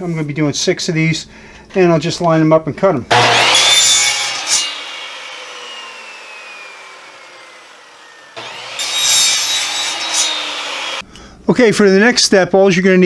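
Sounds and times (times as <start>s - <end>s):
miter saw whine: 3.1s - 11.0s
saw blade cutting pipe: 3.1s - 11.0s.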